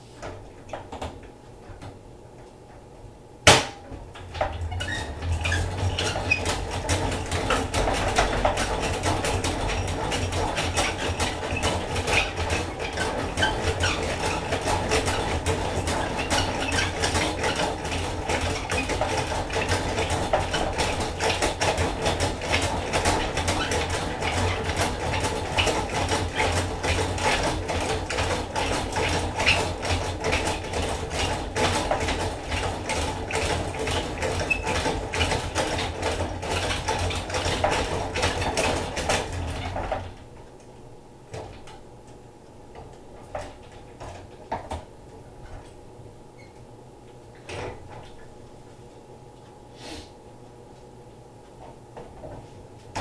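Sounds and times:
honey extractor gears clattering: 3.5s - 40.2s.

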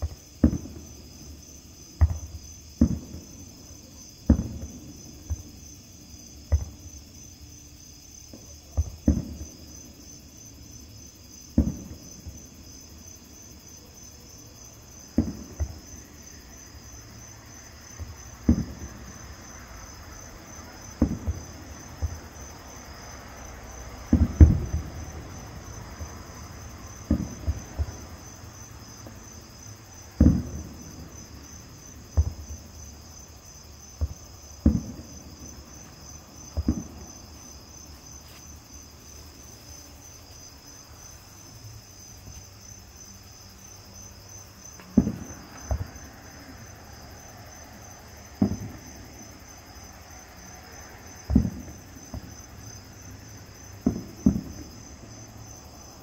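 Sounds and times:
distant fireworks booming: 0.0s - 7.3s, 8.2s - 10.1s, 11.5s - 13.4s, 14.9s - 16.6s, 17.8s - 38.0s, 44.7s - 49.6s, 50.7s - 55.9s
night insects chirping: 0.0s - 56.0s.

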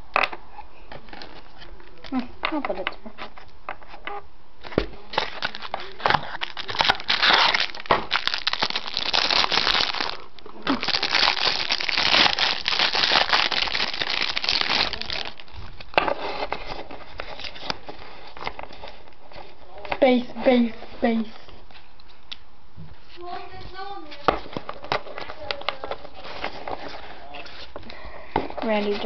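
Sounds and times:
plastic wrapper crinkling: 5.1s - 19.2s.

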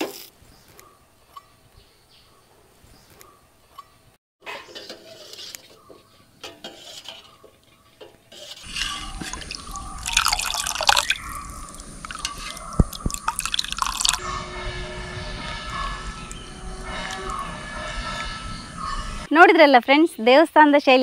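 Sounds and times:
soup pouring and splashing: 8.6s - 14.2s
liquid dripping: 8.7s - 14.2s.

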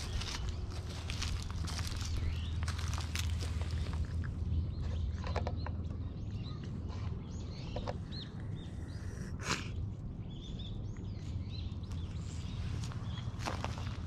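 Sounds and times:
footsteps crunching on dry leaves: 0.0s - 4.1s, 11.8s - 14.0s
small birds chirping: 0.0s - 14.0s
steady low rumble: 0.0s - 14.0s.

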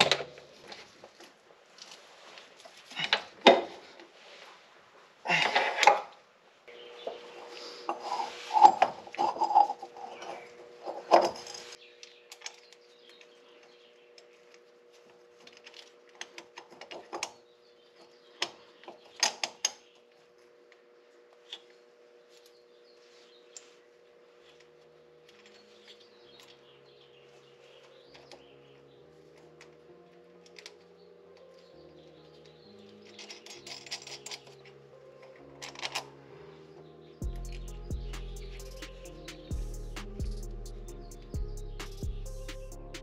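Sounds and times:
metal clinks and clicks: 33.0s - 34.7s.

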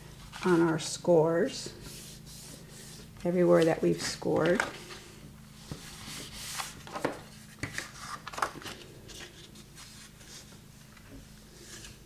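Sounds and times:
cardstock rustling: 0.1s - 1.0s.

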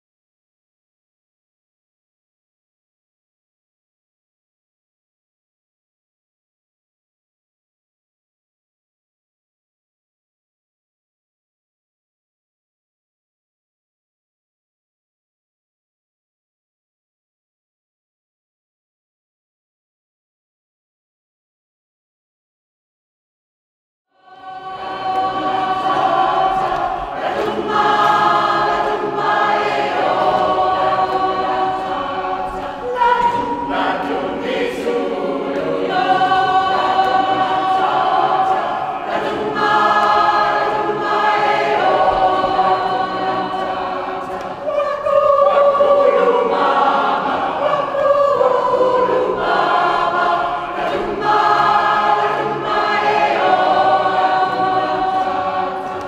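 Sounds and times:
choir singing: 24.1s - 56.0s.

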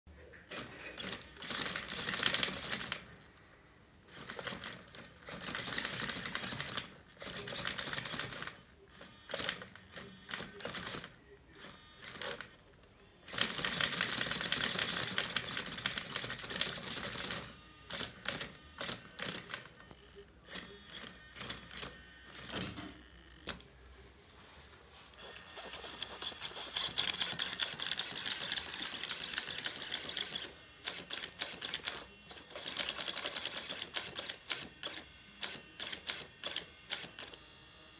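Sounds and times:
steering servo whirring: 25.2s - 37.9s.

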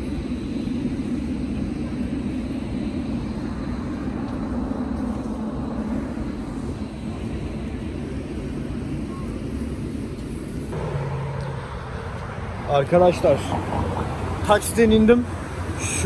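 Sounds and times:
car rumbling: 10.6s - 16.0s.

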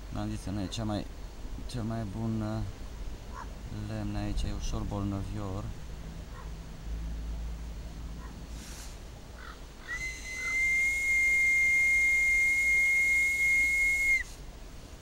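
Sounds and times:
bark whistle high note: 9.9s - 14.3s.

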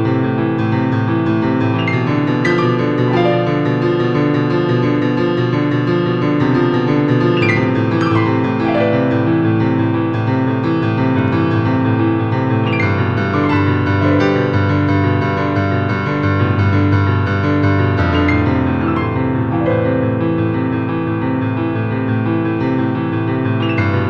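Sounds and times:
piano music: 0.0s - 24.0s.

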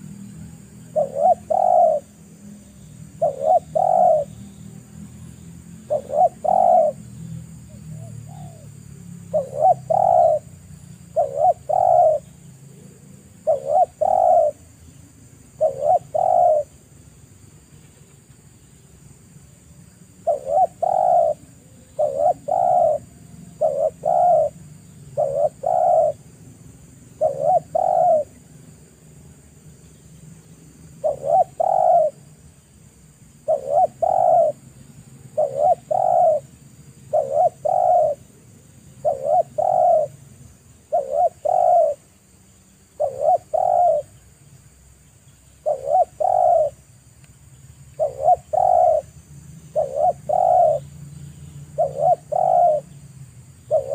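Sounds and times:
dove cooing: 0.0s - 2.2s, 3.1s - 4.4s, 5.8s - 7.0s, 7.7s - 8.7s, 9.3s - 14.8s, 15.5s - 16.8s, 20.2s - 26.3s, 27.2s - 28.5s, 31.0s - 32.3s, 33.4s - 34.7s, 35.3s - 36.5s, 37.1s - 38.4s, 39.0s - 40.2s, 40.8s - 42.1s, 42.9s - 44.2s, 45.6s - 46.8s, 48.0s - 50.9s, 51.8s - 53.0s, 53.7s - 53.9s.

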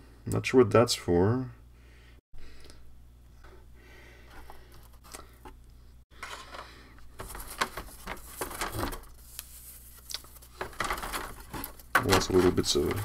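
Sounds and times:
wood sheets rustling in a box: 7.1s - 13.0s.

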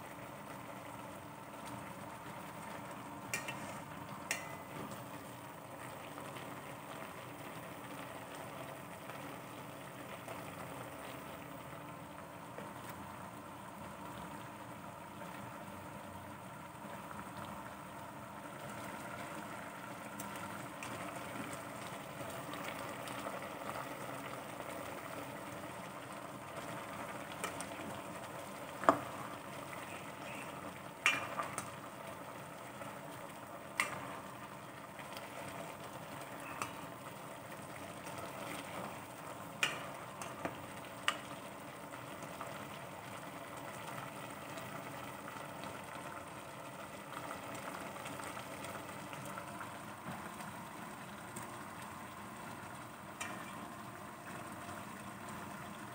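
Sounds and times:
food sizzling in oil: 2.7s - 8.2s, 18.6s - 55.9s.

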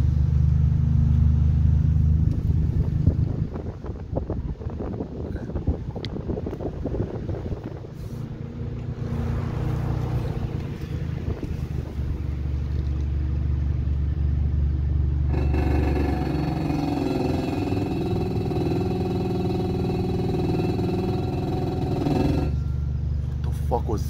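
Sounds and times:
car engine and road rumble: 0.0s - 24.0s
droning higher tones: 15.1s - 23.2s.

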